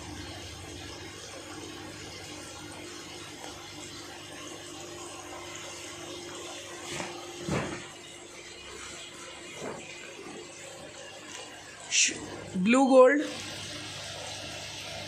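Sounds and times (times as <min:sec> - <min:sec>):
bubbling aquarium filter water: 0:00.0 - 0:15.0.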